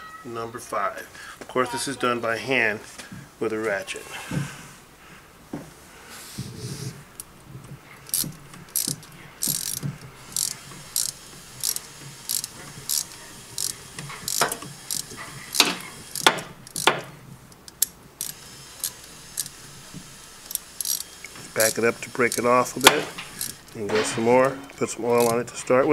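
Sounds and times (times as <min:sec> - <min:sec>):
hand ratchet clicking: 0:08.0 - 0:19.6, 0:20.4 - 0:23.8, 0:25.1 - 0:25.4.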